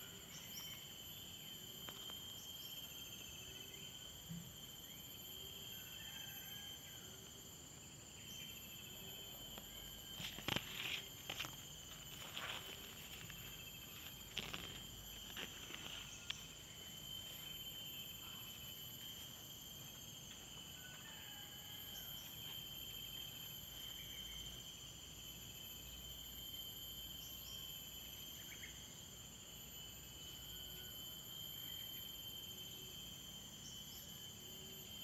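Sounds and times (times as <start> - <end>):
insects trilling: 0.0 - 35.0
dry grass rustling: 10.2 - 16.0.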